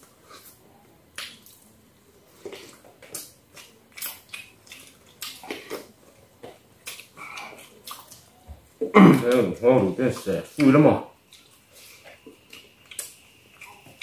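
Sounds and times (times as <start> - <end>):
chewing and lip-smacking: 0.3 - 1.7, 2.3 - 8.4, 9.3 - 14.0.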